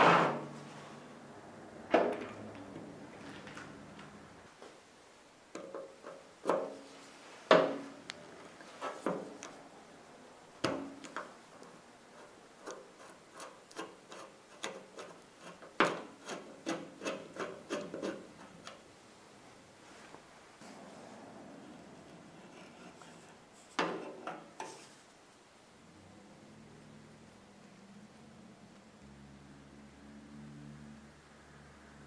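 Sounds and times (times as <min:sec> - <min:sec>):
screwdriver scraping rusted screw: 0:12.2 - 0:18.8.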